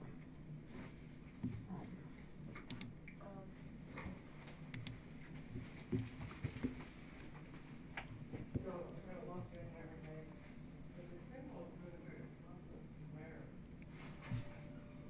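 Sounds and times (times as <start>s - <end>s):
computer mouse clicks: 2.6s - 3.2s, 4.4s - 5.0s.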